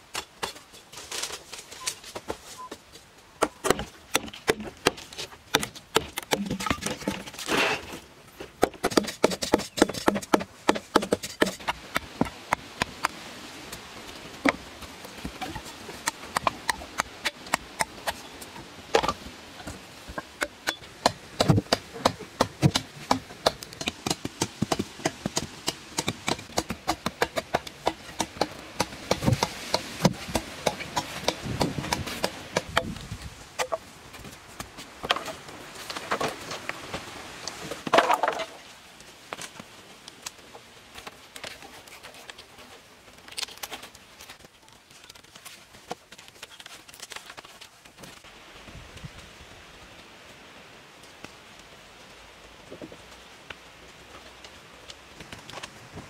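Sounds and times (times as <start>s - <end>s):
blade chopping wooden poles: 3.4s - 13.2s, 14.4s - 18.3s, 18.9s - 33.8s.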